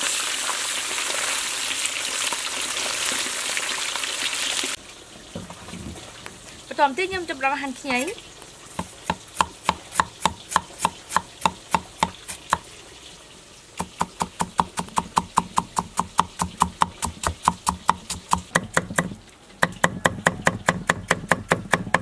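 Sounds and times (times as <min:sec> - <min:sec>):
cleaver knocking on chopping board: 0:08.8 - 0:12.6.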